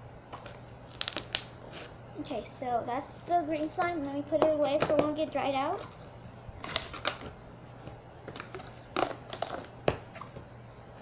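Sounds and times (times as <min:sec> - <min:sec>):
plastic tub clicking and crackling: 0:06.6 - 0:07.3, 0:08.3 - 0:10.0.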